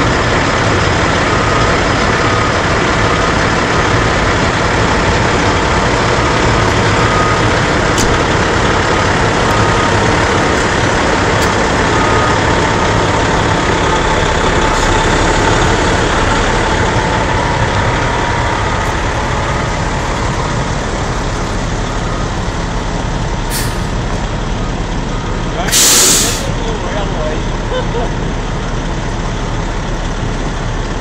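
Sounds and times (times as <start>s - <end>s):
forklift engine running: 0.0s - 31.0s
short hiss: 23.5s - 23.9s, 25.7s - 26.5s.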